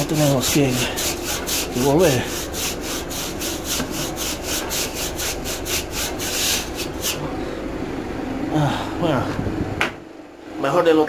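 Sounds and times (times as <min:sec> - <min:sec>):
broom scrubbing metal coil: 0:00.0 - 0:07.4.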